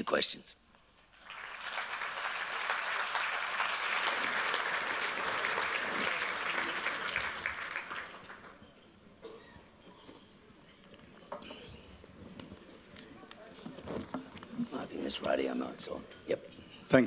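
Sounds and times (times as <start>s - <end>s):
audience applauding: 1.1s - 8.6s.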